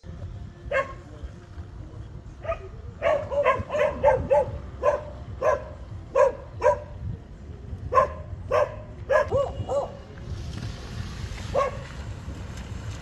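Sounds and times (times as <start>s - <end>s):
dog barking: 0.7s - 1.1s, 2.4s - 7.0s, 7.9s - 10.0s, 11.5s - 11.9s.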